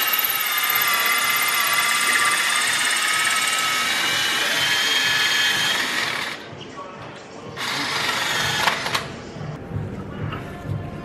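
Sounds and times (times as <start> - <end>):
cordless drill whining: 0.0 - 6.4, 7.6 - 9.1.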